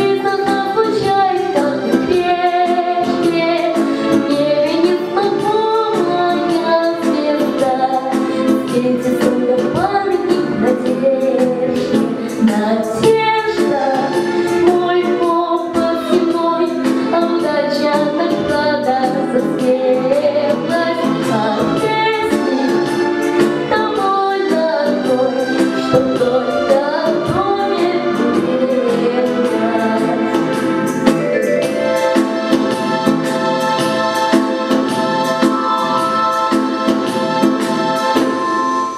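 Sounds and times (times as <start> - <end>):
girl singing into microphone: 0.0 - 23.0, 23.6 - 30.7
backing track with beat: 0.0 - 38.9.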